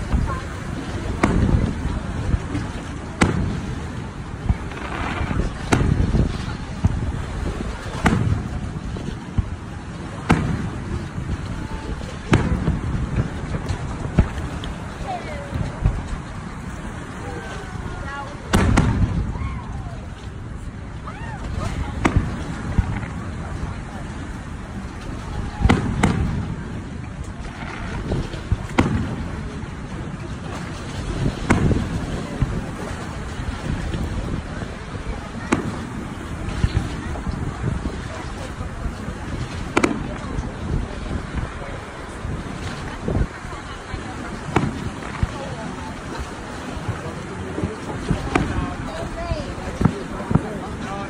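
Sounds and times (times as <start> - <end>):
low rumble: 0.0 - 51.0
firework shells bursting: 1.0 - 9.6, 18.5 - 19.3, 25.0 - 29.4, 30.6 - 32.6, 44.3 - 45.5, 47.6 - 50.5
weak firework pop: 3.2 - 3.6, 4.4 - 7.1, 7.9 - 9.6, 10.2 - 11.4, 25.6 - 26.4, 27.2 - 29.2, 31.4 - 32.6, 39.4 - 40.5, 44.5 - 45.4, 47.6 - 48.6.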